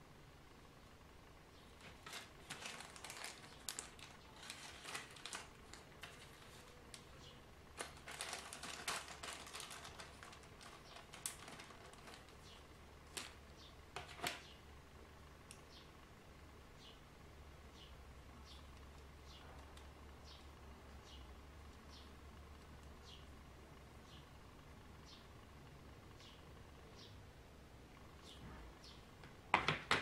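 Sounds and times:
plastic bag crinkling: 0:01.8 - 0:07.1, 0:07.7 - 0:14.4.

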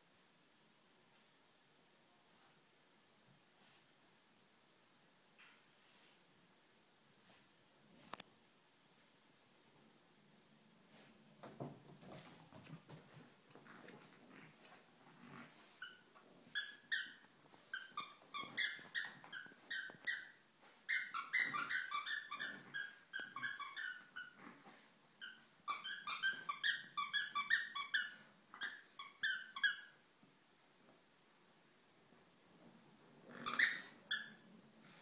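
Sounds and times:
squeaky dog toy squeaking: 0:15.8 - 0:24.4, 0:25.2 - 0:30.0, 0:33.3 - 0:34.5.

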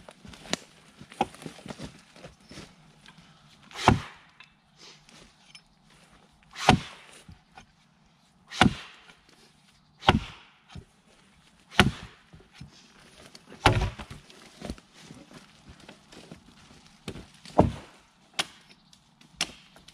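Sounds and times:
axe chopping into log: 0:03.7 - 0:04.2, 0:06.6 - 0:07.0, 0:08.5 - 0:09.1, 0:10.0 - 0:10.5, 0:11.7 - 0:12.2, 0:13.6 - 0:14.1, 0:17.1 - 0:18.6.

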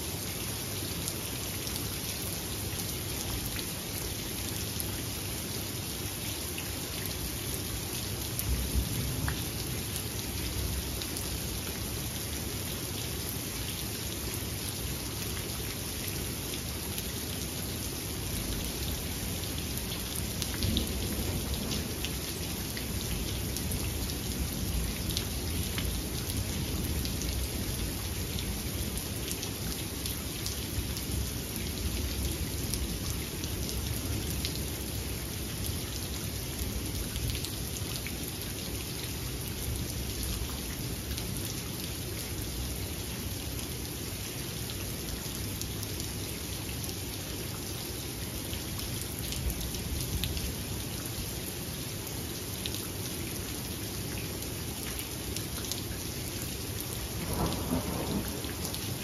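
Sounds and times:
steady rain falling: 0:00.0 - 0:59.0
low rumble of thunder: 0:20.2 - 0:27.8, 0:57.1 - 0:59.0.

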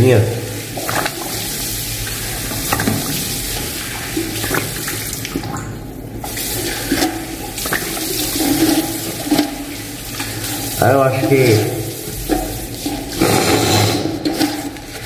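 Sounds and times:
tap water running into sink: 0:00.0 - 0:15.0
water splashing from hands: 0:00.7 - 0:05.7.

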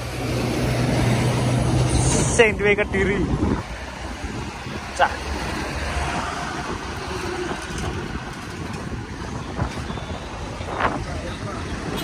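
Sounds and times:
road traffic passing: 0:00.0 - 0:12.0.

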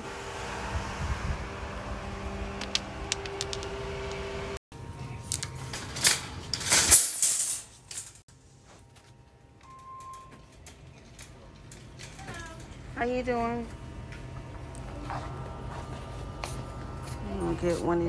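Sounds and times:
steady hum with held tone: 0:00.0 - 0:18.0
metal shopping cart rattling: 0:05.5 - 0:08.2, 0:10.5 - 0:13.6.

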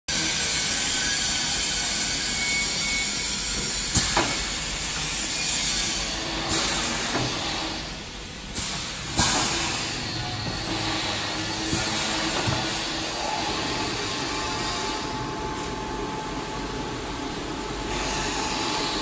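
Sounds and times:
machine air hiss: 0:00.1 - 0:19.0
pneumatic clacks: 0:02.0 - 0:15.1.

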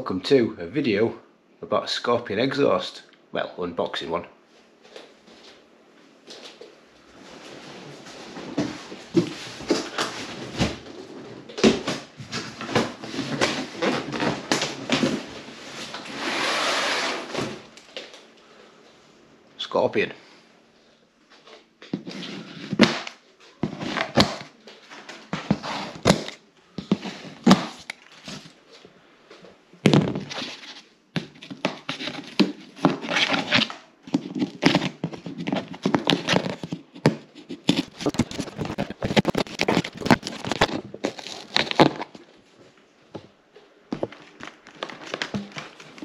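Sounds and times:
cardboard box scraping and rustling: 0:12.3 - 0:17.7, 0:30.2 - 0:42.1.

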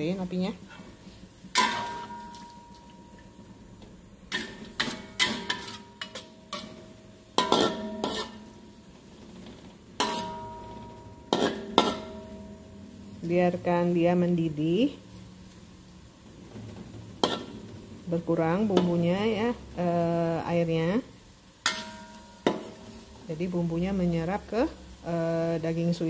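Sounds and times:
metal spatula scraping a wok: 0:00.6 - 0:02.8, 0:04.3 - 0:12.7, 0:16.4 - 0:19.9, 0:21.6 - 0:23.5.

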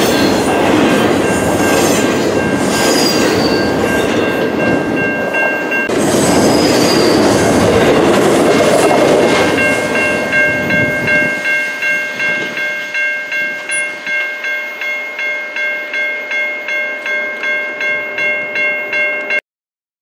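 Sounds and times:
train rumble: 0:00.0 - 0:12.7
level-crossing bell ringing: 0:01.0 - 0:06.0, 0:09.4 - 0:19.4.

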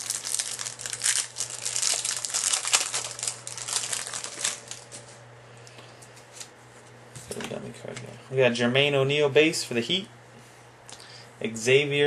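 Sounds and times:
plastic wrapper tearing and crinkling: 0:00.0 - 0:05.1.

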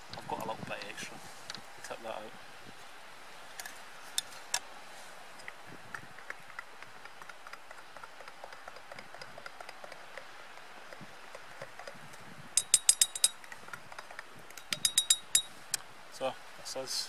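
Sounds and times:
spoon clinking against cup: 0:12.6 - 0:13.4, 0:14.6 - 0:15.5.

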